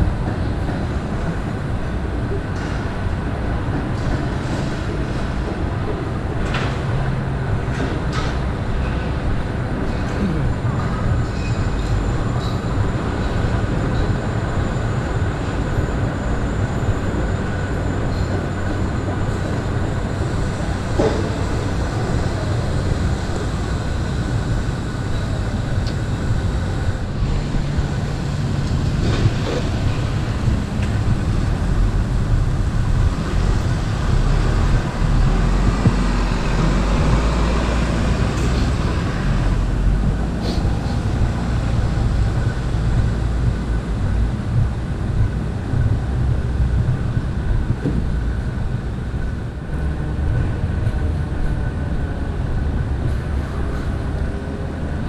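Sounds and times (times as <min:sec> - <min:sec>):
city traffic rumble: 0:00.0 - 0:55.0
vehicle passing: 0:27.3 - 0:43.8.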